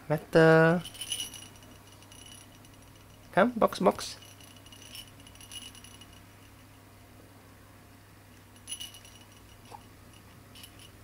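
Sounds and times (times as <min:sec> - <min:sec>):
small bell jingling in toy ball: 0:00.8 - 0:03.4, 0:04.0 - 0:06.7, 0:08.5 - 0:11.0.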